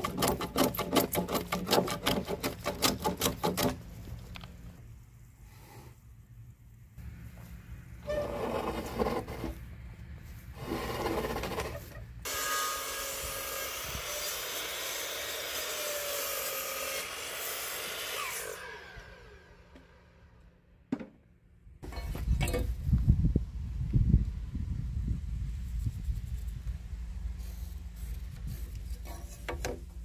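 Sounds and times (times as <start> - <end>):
mitre saw cutting wood: 8.1 - 9.6, 10.6 - 20.0
wooden knocks and scrapes: 28.3 - 30.0.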